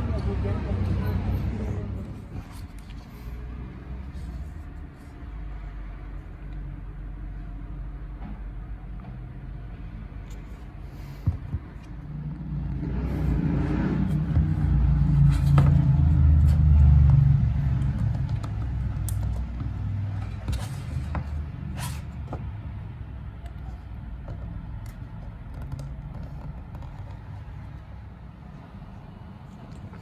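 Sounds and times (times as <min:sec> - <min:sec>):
paper and card rustling: 0:02.0 - 0:05.4, 0:17.8 - 0:22.5, 0:23.5 - 0:27.9.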